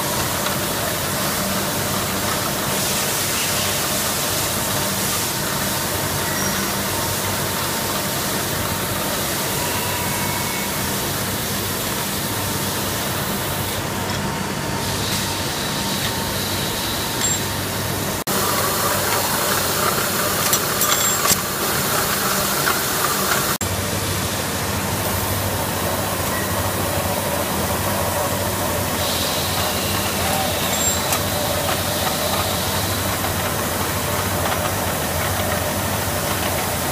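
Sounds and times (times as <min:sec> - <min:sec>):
production machinery hum and hiss: 0:00.0 - 0:36.9.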